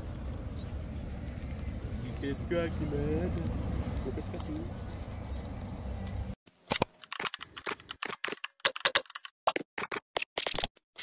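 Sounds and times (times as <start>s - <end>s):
outdoor background noise: 0.0s - 9.0s
keyboard typing: 7.0s - 10.7s.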